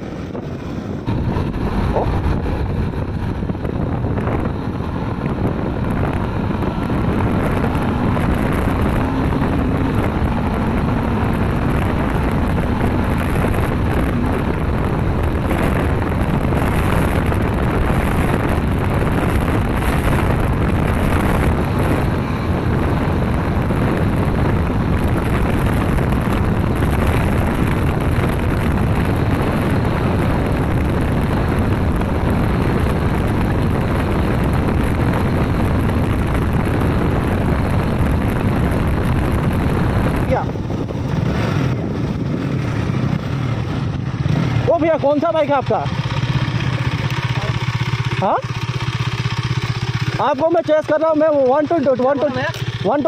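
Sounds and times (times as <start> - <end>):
motorcycle engine running: 0.0 - 53.0
wind noise on microphone: 0.0 - 53.0.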